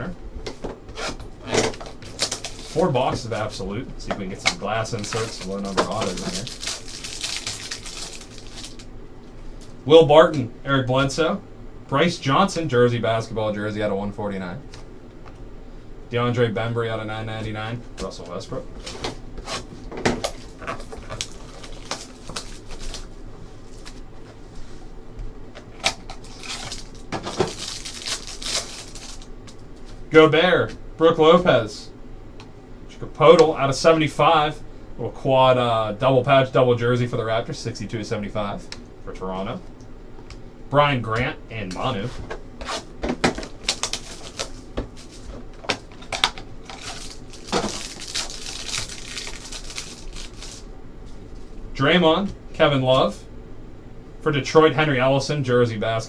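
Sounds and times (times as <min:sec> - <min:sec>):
cardboard and plastic crinkling: 0:01.5 - 0:03.6, 0:04.5 - 0:08.9, 0:18.8 - 0:24.0, 0:25.8 - 0:29.3, 0:42.6 - 0:50.6.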